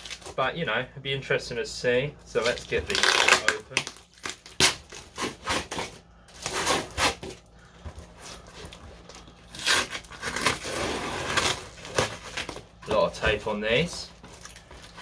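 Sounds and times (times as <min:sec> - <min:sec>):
packing tape tearing: 0:00.0 - 0:00.4, 0:02.4 - 0:07.4, 0:08.2 - 0:12.7.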